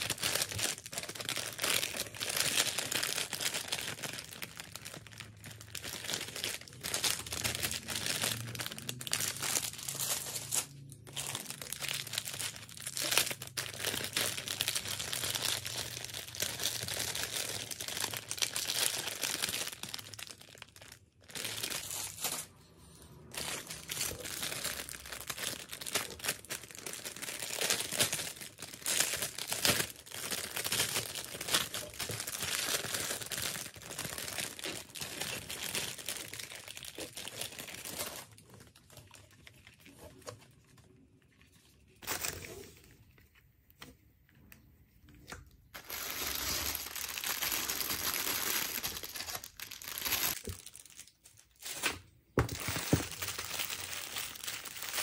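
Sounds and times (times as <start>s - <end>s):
plastic bags crinkling: 0.0s - 43.1s, 45.7s - 55.0s.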